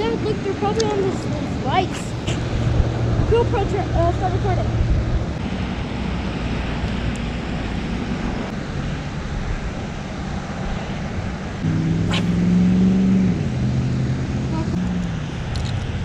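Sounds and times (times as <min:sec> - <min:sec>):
wind buffeting microphone: 0:00.0 - 0:12.4
low outdoor rumble: 0:00.0 - 0:12.6.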